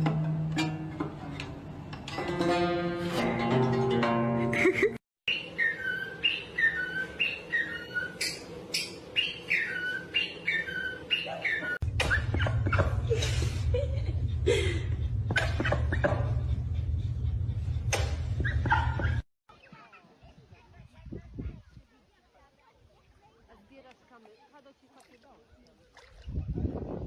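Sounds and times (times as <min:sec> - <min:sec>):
cockatiel whistling: 0:05.3 - 0:12.9
low hum: 0:11.8 - 0:19.2.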